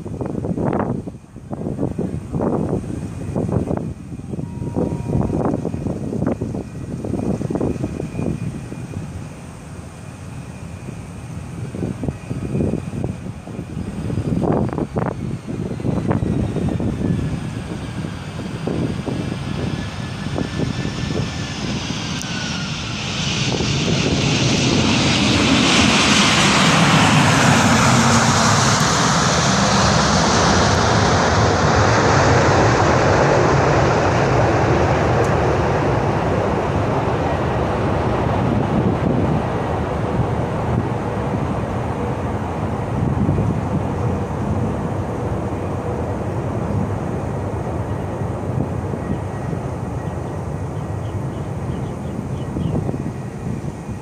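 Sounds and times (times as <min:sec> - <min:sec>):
jet engine whine: 0:00.0 - 0:54.0
jet reverse thrust rush: 0:13.8 - 0:49.0.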